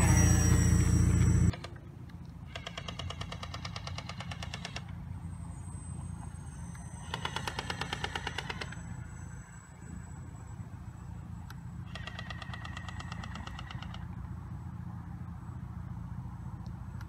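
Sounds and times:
model propellers droning: 0.0s - 17.0s.

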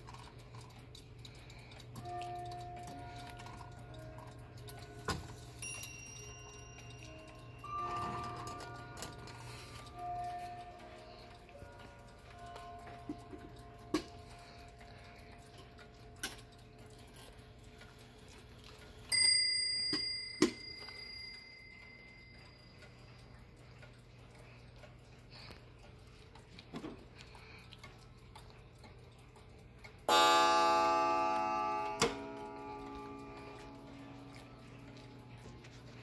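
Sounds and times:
clocks ticking softly: 0.0s - 36.0s
clock striking on high bell: 5.2s - 9.3s, 19.1s - 22.6s, 30.1s - 34.8s
low full clock strike: 30.1s - 34.3s.

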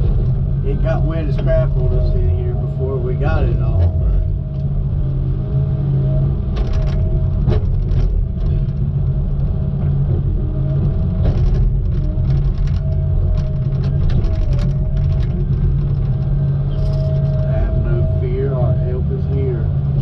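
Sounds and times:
diesel engine rumbling: 0.0s - 20.0s
machinery knocks and clicks: 6.4s - 8.9s, 9.8s - 17.4s
faint steady whine: 12.6s - 20.0s.

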